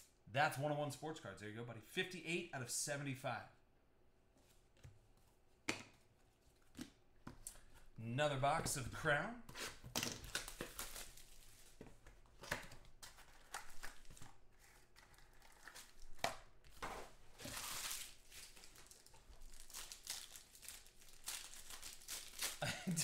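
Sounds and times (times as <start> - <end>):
foil wrappers crinkling and tearing: 10.3 - 11.8, 17.4 - 22.9.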